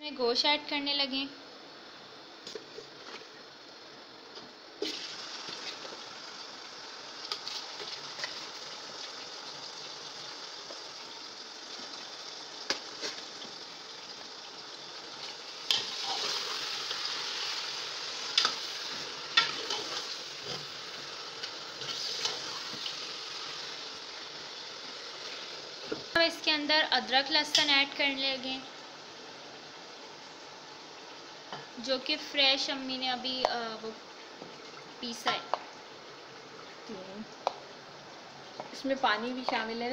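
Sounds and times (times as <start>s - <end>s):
meat sizzling in hot oil: 4.8s - 33.8s.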